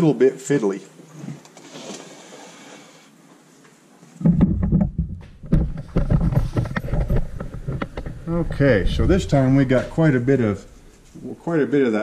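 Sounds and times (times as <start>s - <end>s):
camera handling bumps and rubbing: 4.2s - 11.2s.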